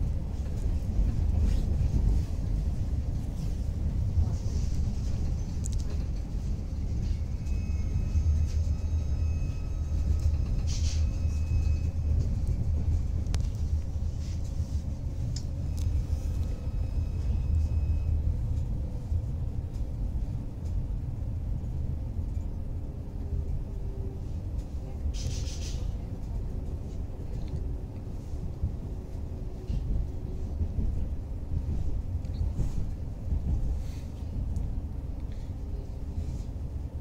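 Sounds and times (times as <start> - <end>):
train low rumble: 0.0 - 37.0.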